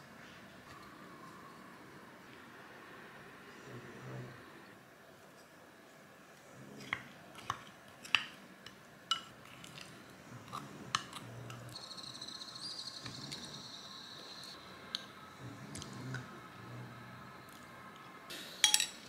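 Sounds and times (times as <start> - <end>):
spoon clinking on ceramic bowl: 18.6 - 19.0.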